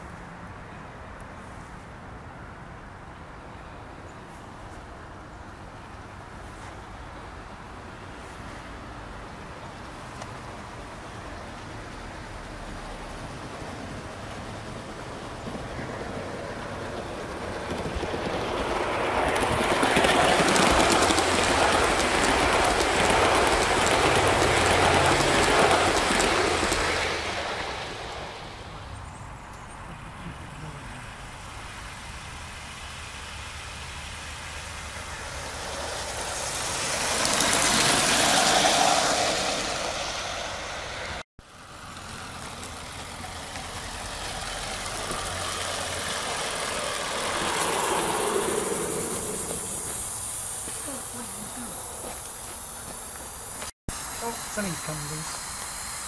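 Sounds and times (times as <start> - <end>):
wheels rumbling over rails: 8.2 - 53.7
steam exhaust hissing: 31.1 - 56.0.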